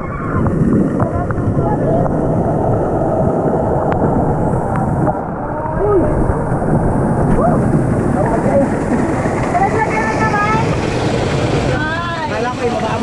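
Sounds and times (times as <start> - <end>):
wind noise on microphone: 0.0 - 12.3
fast river water rushing: 0.0 - 13.0.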